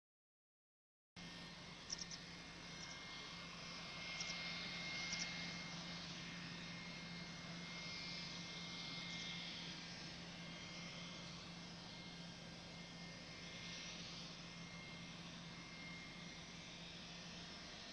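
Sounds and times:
high whine: 1.2s - 7.6s.

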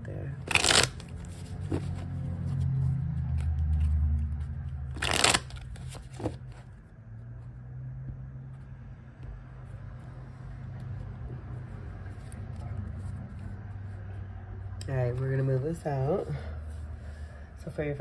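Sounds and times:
cards being handled: 0.4s - 6.9s.

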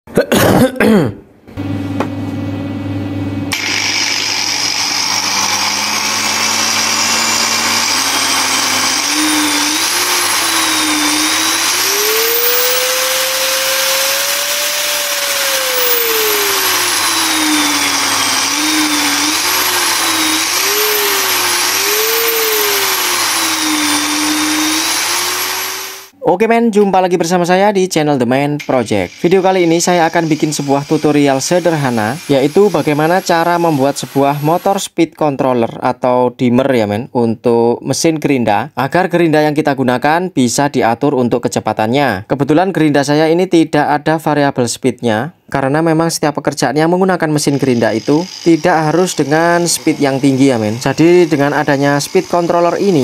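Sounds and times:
angle grinder motor whine: 3.5s - 26.2s, 28.6s - 34.8s, 47.4s - 53.0s.

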